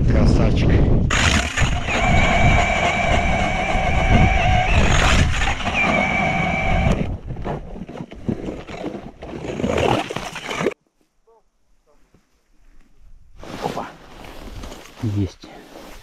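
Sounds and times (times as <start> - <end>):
engine running with whine: 1.2 - 7.1.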